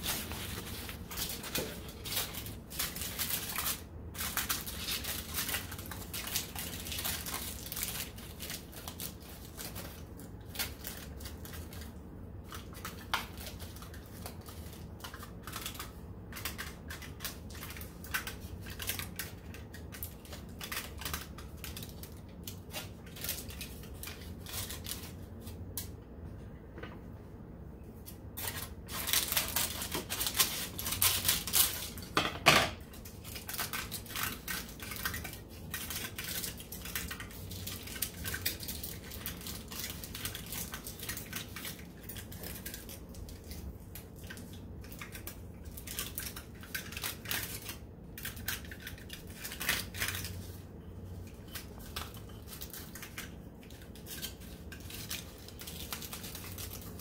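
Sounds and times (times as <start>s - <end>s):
aluminium foil crinkling: 0.0s - 26.0s, 28.0s - 32.2s, 32.8s - 57.0s.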